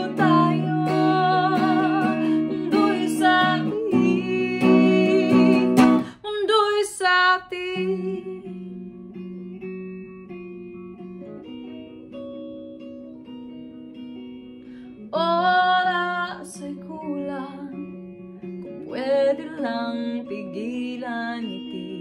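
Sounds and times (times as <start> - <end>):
woman singing: 0.0 - 9.0, 15.0 - 22.0
picked electric guitar: 0.0 - 22.0.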